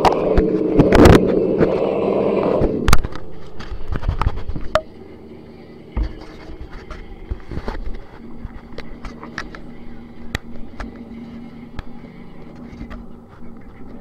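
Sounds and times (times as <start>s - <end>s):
scattered clicks and scrapes: 2.6s - 4.8s, 6.0s - 14.0s.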